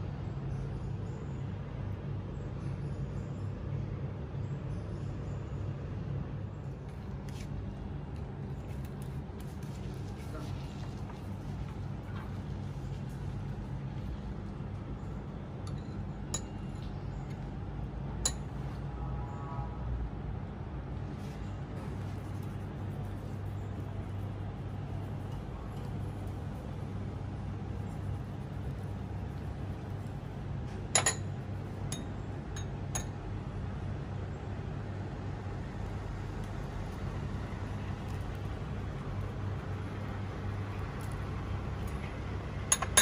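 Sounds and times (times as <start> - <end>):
steady low hum: 0.0 - 43.0
glass bowls clinking: 31.0 - 31.3, 42.7 - 43.0.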